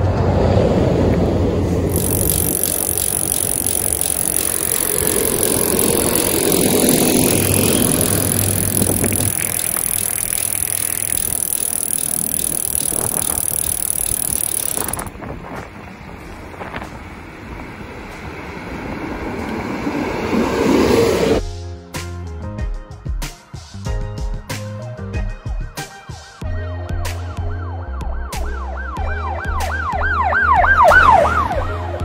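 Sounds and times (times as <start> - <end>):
bicycle tyres on asphalt: 1.9 - 20.7.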